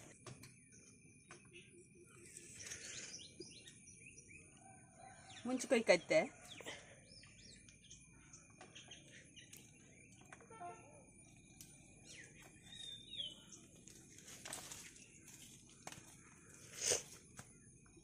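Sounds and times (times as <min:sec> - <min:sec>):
bird chirp: 0:00.0 - 0:16.6
plants rustling as picked by hand: 0:13.6 - 0:17.6.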